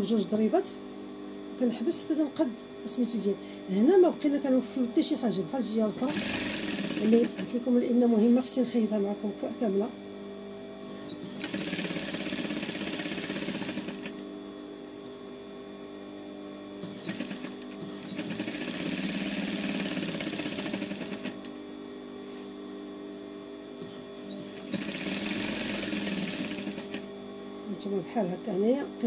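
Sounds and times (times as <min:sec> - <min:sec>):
steady hum: 0:00.0 - 0:29.0
sewing machine stitching: 0:06.0 - 0:07.6, 0:11.2 - 0:14.2, 0:16.9 - 0:21.5, 0:23.9 - 0:27.1.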